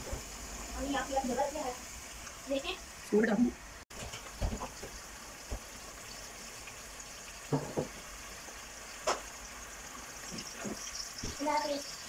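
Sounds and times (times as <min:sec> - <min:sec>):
soft knocks on cooking pot: 0:07.5 - 0:08.0.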